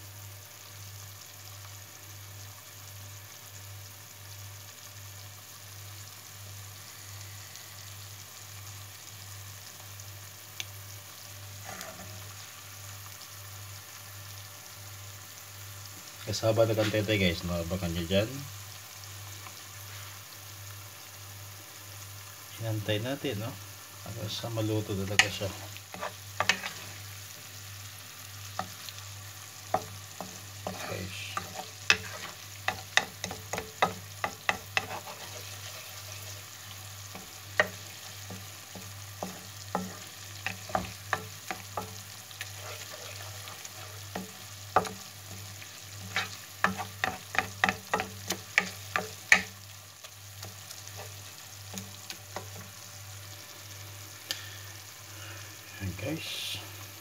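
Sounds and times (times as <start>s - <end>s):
sauce sizzling in oil: 0.0s - 57.0s
spatula tapping against pan: 32.7s - 34.9s, 46.7s - 49.5s.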